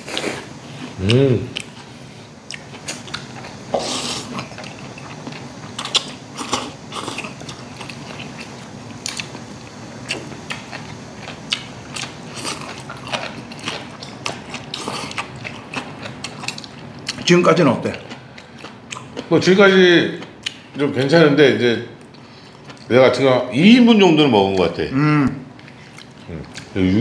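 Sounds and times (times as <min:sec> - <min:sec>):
chewing: 0:00.0 - 0:09.4, 0:10.0 - 0:19.3, 0:20.2 - 0:20.9, 0:22.0 - 0:22.9, 0:25.6 - 0:26.8.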